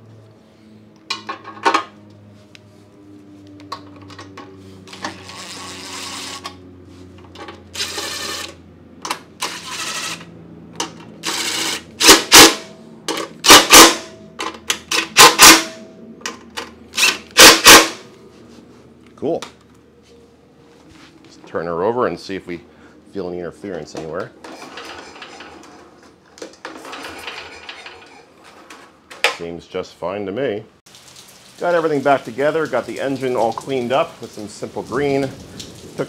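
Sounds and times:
impact driver driving bolts: 11.2 - 15.8, 17.0 - 18.0.

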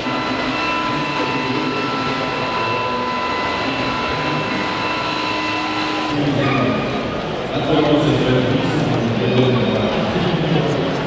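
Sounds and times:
high-pitched whine of held tones: 0.0 - 6.2
crowd murmur in large hall: 0.0 - 11.0.

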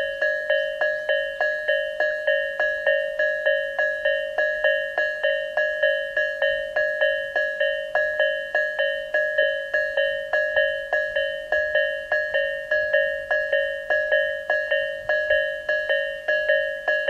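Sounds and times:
level crossing warning bell: 0.0 - 17.0.

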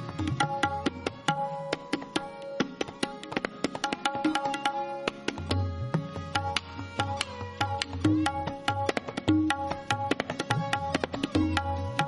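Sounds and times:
tabla playing: 0.0 - 12.0.

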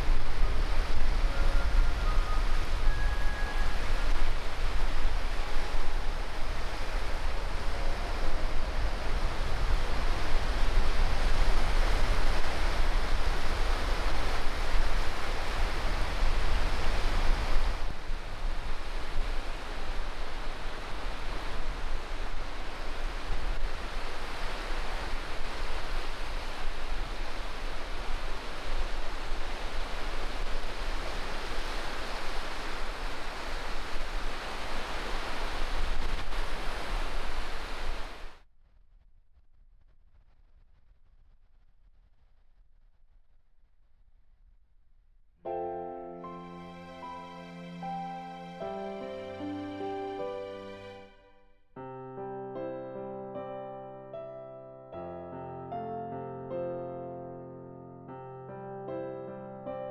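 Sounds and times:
waves lapping on wet sand: 0.0 - 38.3
sea surf washing on beach: 0.0 - 38.4.

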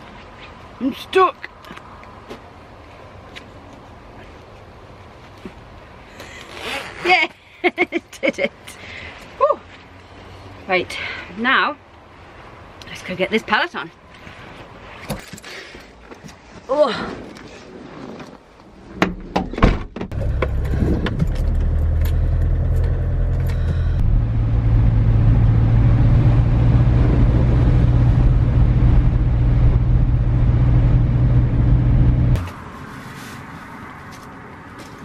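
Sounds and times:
van engine running: 20.1 - 32.5.

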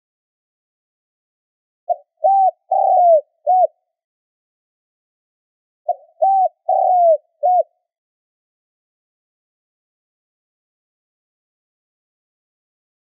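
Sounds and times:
dove cooing: 1.9 - 3.8, 5.9 - 7.8.

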